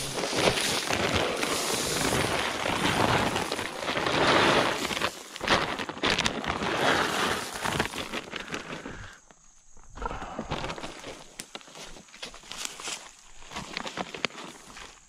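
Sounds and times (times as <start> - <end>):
corn pouring onto dry leaves: 0.0 - 9.1
plastic bag crinkling: 0.0 - 9.1.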